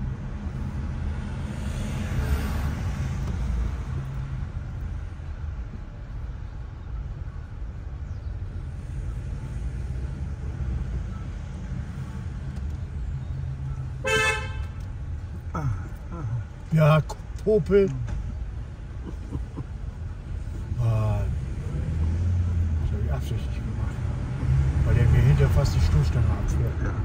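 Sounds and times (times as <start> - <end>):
car engine and road rumble: 0.0 - 27.0
car horn honk: 14.0 - 14.9.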